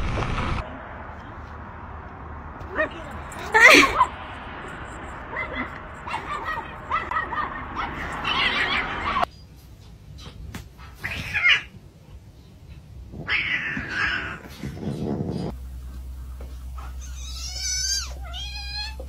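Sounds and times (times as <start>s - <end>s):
cat giving rough cries: 11.0s - 11.7s, 13.1s - 14.7s, 17.0s - 19.0s
kitten high wavering meow: 17.1s - 19.0s.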